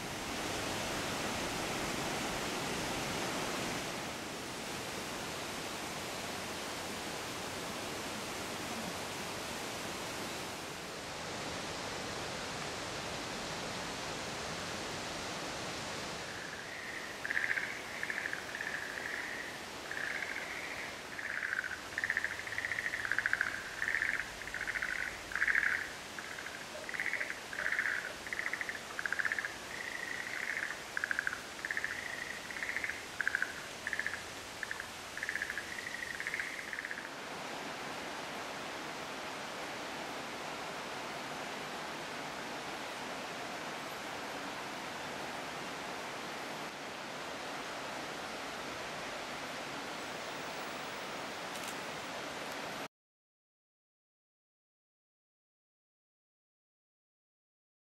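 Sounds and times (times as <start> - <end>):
steady hiss: 0.0 - 52.9
frogs calling: 16.2 - 37.2.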